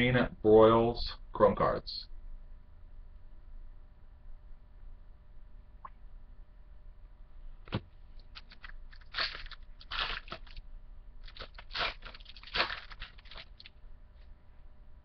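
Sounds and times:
plastic wrapper crinkling and tearing: 0:08.2 - 0:10.6, 0:11.2 - 0:13.8.

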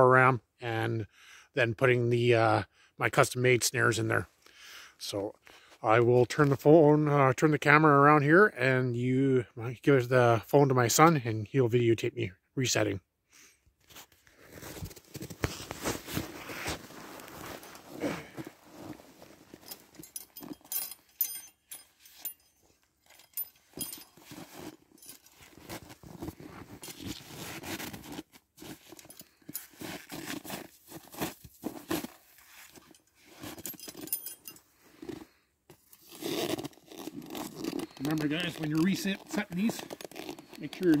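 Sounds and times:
boots shuffling in snow: 0:14.4 - 0:20.0
metallic jingling and clinking: 0:19.5 - 0:25.9, 0:32.8 - 0:35.2.

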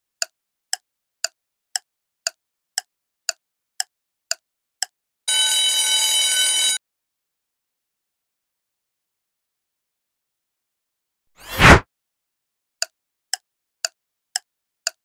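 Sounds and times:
timer ticking: 0:00.2 - 0:05.0
alarm ringing: 0:05.3 - 0:06.8.

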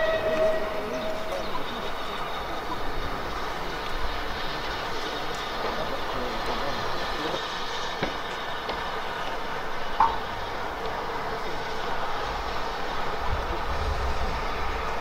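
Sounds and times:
high squeak: 0:00.0 - 0:01.7
steam locomotive hissing: 0:00.0 - 0:15.0
low rumble: 0:13.2 - 0:15.0.

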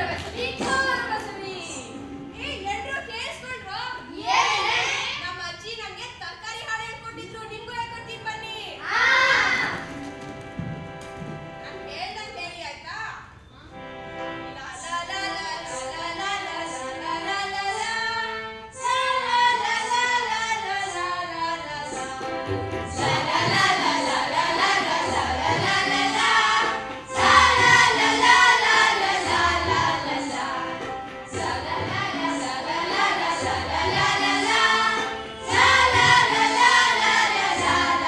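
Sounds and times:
children singing in chorus: 0:22.9 - 0:38.0.

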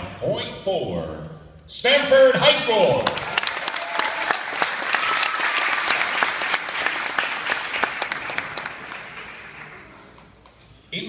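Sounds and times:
crowd applauding: 0:02.9 - 0:10.6.

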